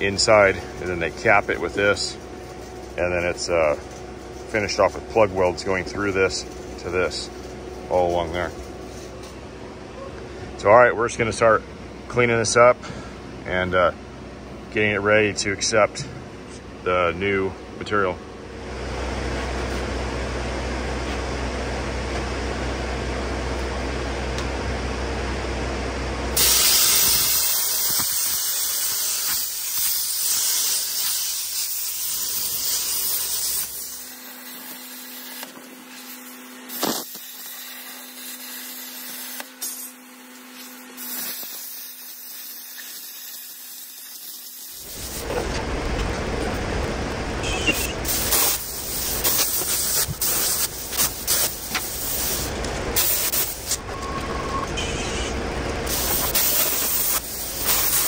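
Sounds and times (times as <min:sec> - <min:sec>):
cutting torch air jet hissing: 0:00.0 - 0:09.4, 0:26.3 - 0:46.5, 0:47.4 - 0:54.2, 0:54.8 - 0:58.0
torch crackling and popping: 0:26.4 - 0:39.9, 0:41.0 - 0:46.1, 0:47.7 - 0:53.8, 0:55.9 - 0:58.0.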